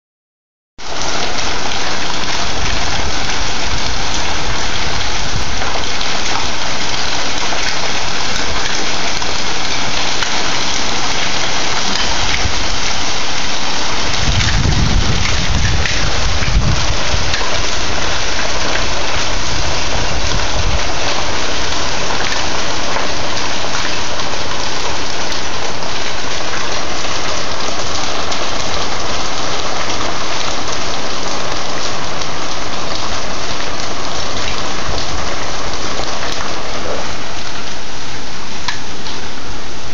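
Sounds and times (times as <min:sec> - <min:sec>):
hail and rain on wooden deck: 0:00.8 - 0:39.9.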